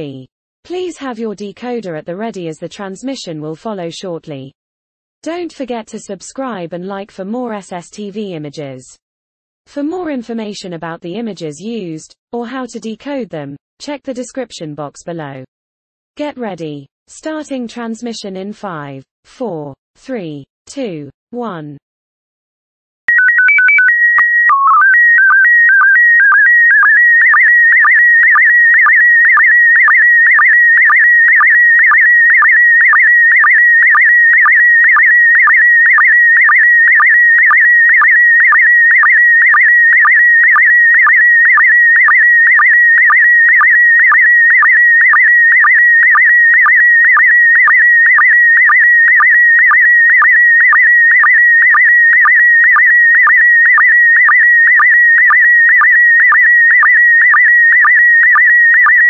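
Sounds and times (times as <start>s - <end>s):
warbling data tone: 23.1s - 59.0s.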